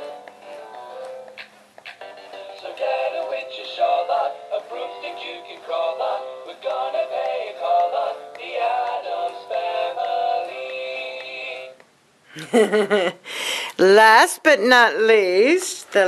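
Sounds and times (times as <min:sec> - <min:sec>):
toy speaker playing novelty song: 0:02.0 - 0:11.8.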